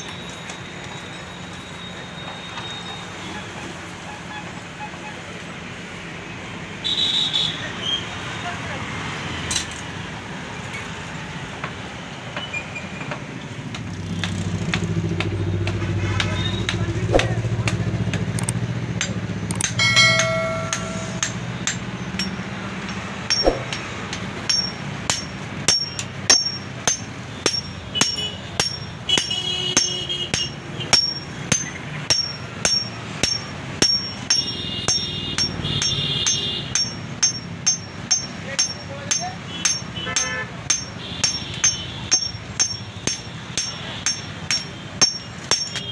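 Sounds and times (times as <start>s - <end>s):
hammer striking metal on anvil: 19.0s - 45.9s.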